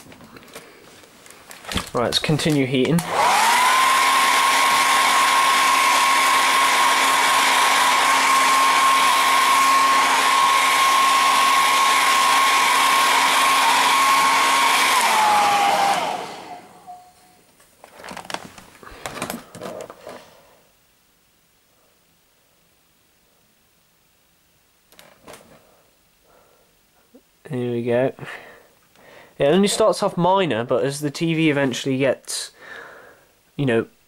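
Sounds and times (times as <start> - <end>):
hair dryer blowing: 2.4 - 17.1.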